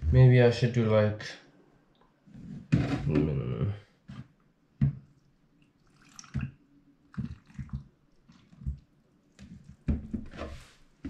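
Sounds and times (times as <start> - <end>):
milk pouring and splashing: 4.8 - 10.3.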